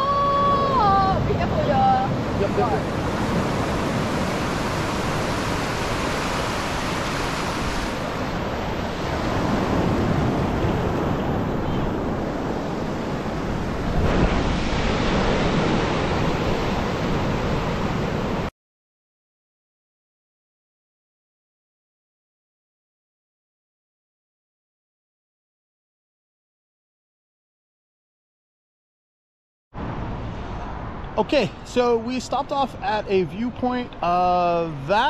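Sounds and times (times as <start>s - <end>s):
surf washing up a beach: 0.0s - 18.5s.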